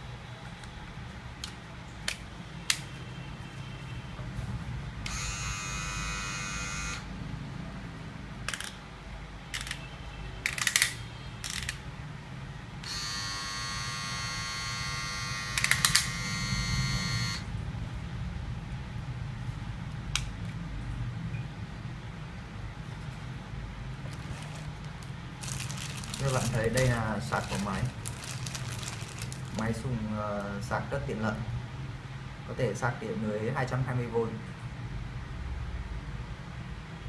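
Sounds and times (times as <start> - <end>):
hair clipper buzzing: 5.1 - 7.0, 12.8 - 17.4.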